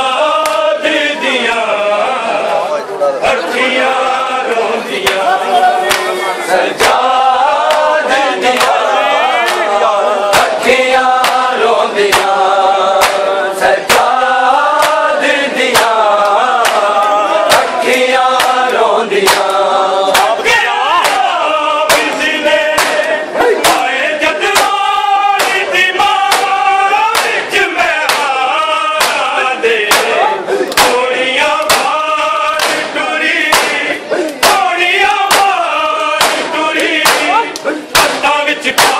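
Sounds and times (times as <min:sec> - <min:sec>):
group of voices chanting: 0:00.0 - 0:38.9
man chanting a lament: 0:00.0 - 0:38.9
hands beating on chests: 0:08.5 - 0:10.6, 0:11.2 - 0:12.4, 0:13.0 - 0:13.2, 0:15.7 - 0:38.9.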